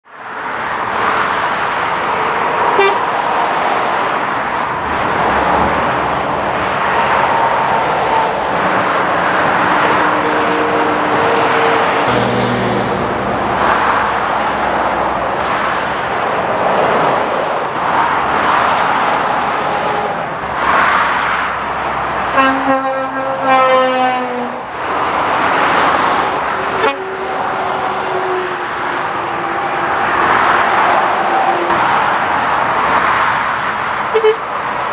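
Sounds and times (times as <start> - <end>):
vehicles passing on a road: 0.0 - 34.9
vehicle horn: 2.8 - 3.0, 9.8 - 13.2, 22.3 - 24.7, 26.7 - 28.6, 34.1 - 34.5.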